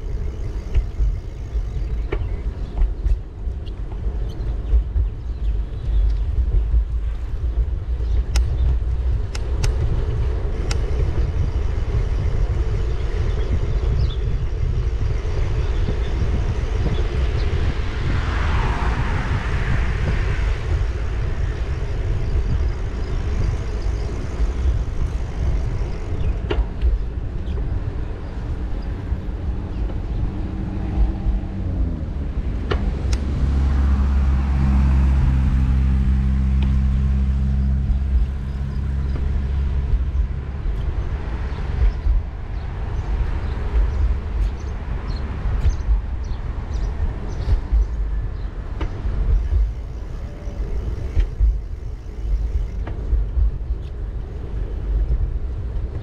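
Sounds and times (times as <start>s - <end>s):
engine hum: 0.0s - 56.0s
road traffic: 0.0s - 56.0s
steady low rumble: 0.0s - 56.0s
vehicle passing: 23.9s - 55.6s.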